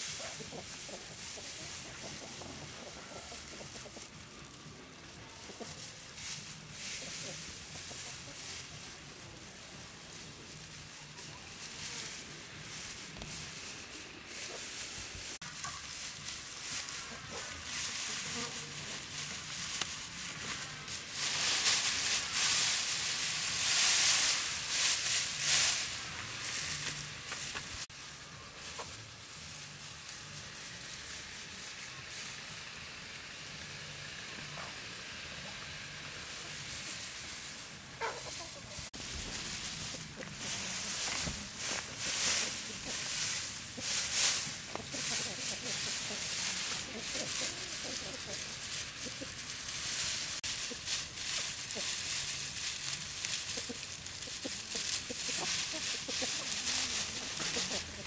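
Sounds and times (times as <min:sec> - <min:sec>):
dry straw rustling and crackling: 0:00.0 - 0:58.0.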